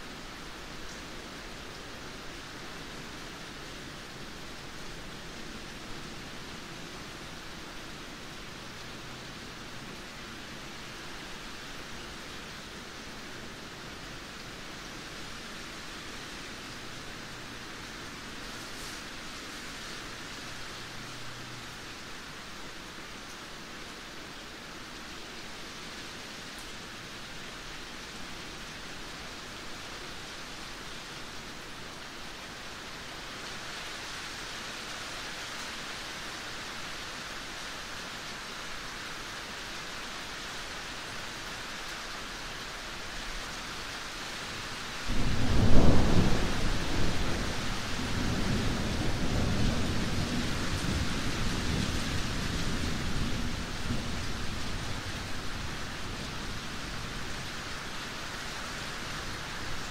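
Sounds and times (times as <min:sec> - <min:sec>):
steady rain: 0:00.0 - 0:59.9
thunder clap and rumble: 0:45.1 - 0:54.3.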